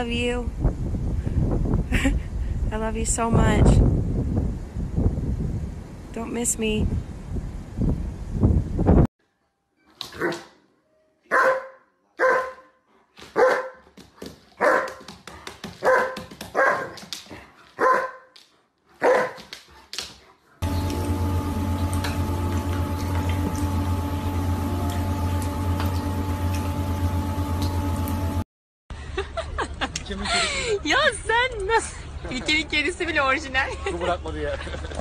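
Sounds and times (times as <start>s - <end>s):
dog barking: 11.3s - 12.8s, 13.4s - 13.8s, 14.6s - 15.0s, 15.8s - 17.0s, 17.8s - 18.4s, 19.0s - 19.5s
hum with low drone: 20.6s - 28.5s.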